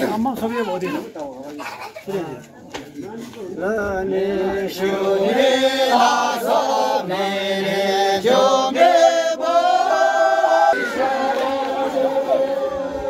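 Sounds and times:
men singing a chant: 3.6 - 13.0.

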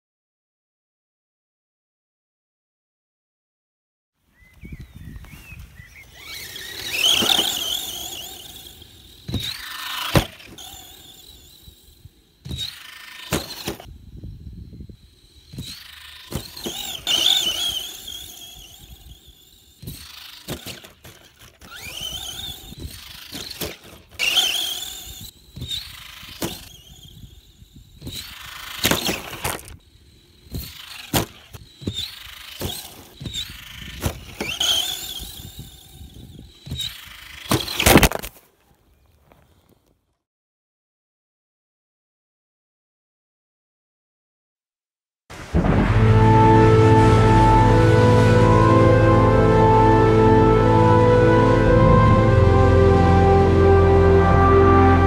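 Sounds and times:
electric motor whining: 5.1 - 37.9.

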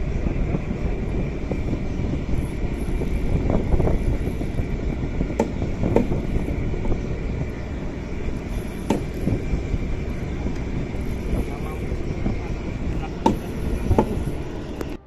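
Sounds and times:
boat engine rumble: 0.0 - 15.0
sharp knocks: 5.3 - 6.2, 8.8 - 9.2.

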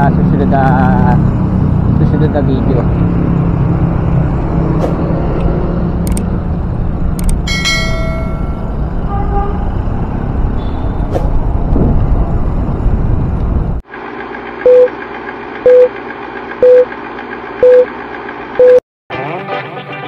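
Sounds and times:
bicycle road noise: 0.0 - 16.5
wind rumble on microphone: 9.7 - 13.8
film countdown whirr: 14.6 - 18.8
loud short beeps: 16.6 - 16.9.

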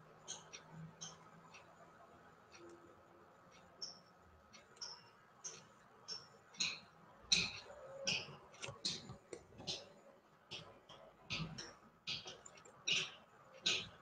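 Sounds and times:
computer mouse clicking: 3.6 - 9.9.

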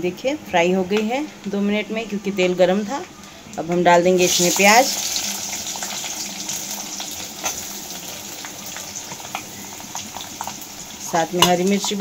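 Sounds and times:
onions sizzling in hot oil: 2.7 - 12.0.

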